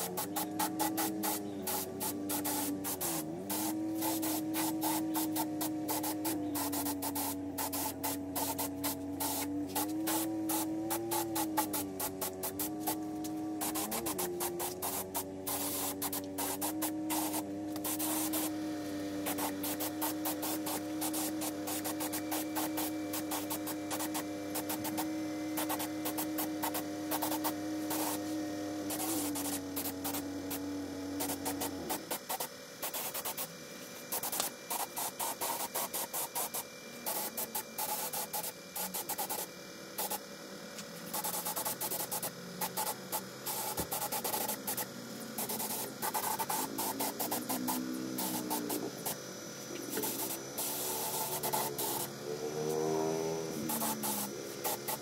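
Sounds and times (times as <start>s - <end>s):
low wavering hum: 0.0s - 32.0s
spray paint can hissing: 0.0s - 55.0s.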